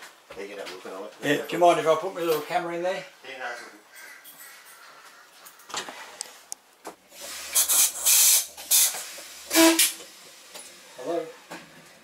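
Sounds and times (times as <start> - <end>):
compressed air hissing: 7.1 - 10.6.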